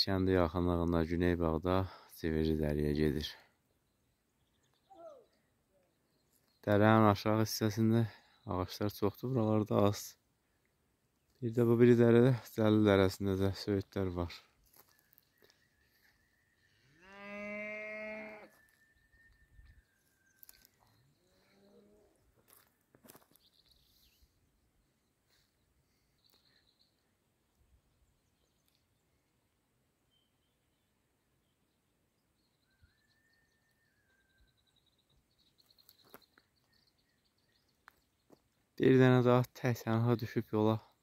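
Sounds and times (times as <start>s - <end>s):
cow mooing: 16.9s - 18.5s
faint thin whistle: 18.4s - 20.6s.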